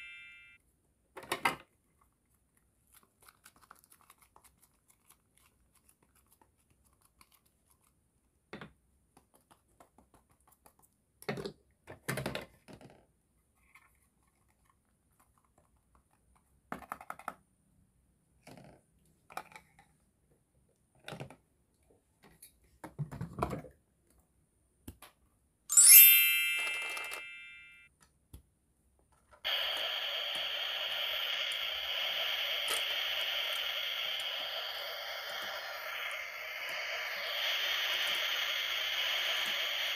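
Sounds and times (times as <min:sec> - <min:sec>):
bright chime: 0:00.0 - 0:00.6, 0:25.7 - 0:27.9
hissing sizzle effect: 0:29.4 - 0:39.9.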